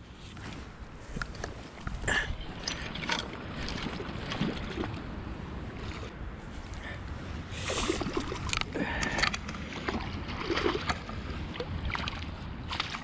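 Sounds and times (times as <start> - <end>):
low wind rumble: 0.0 - 13.0
water splashing and dripping: 2.6 - 5.2, 9.7 - 13.0.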